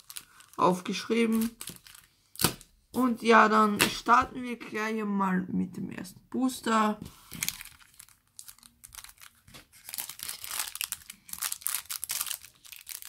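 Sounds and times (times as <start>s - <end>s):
foil wrapper tearing and crinkling: 0.0s - 2.6s, 7.3s - 13.0s.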